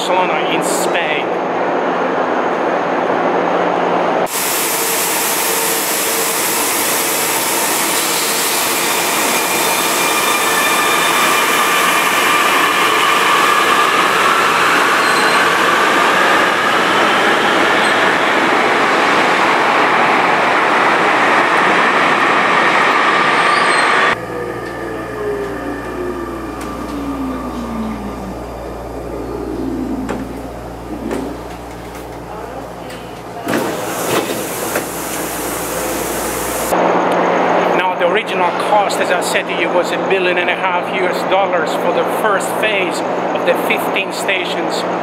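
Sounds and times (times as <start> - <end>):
train wheel and motor noise: 1.4 - 37.7
low motor whine falling in pitch: 24.2 - 32.6.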